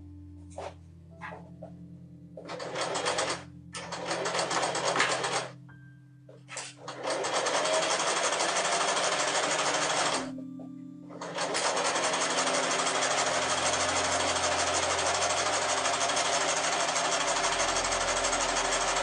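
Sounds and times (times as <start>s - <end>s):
sewing machine stitching: 2.4s - 5.6s, 6.6s - 10.3s, 11.2s - 19.0s.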